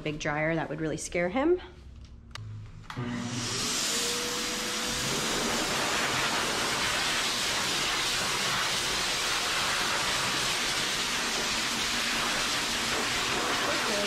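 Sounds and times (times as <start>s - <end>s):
dog dryer blowing air: 3.0s - 14.0s.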